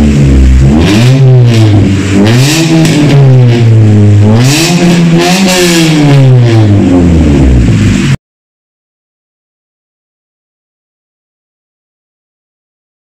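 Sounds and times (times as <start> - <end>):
car engine revving: 0.0 - 8.2.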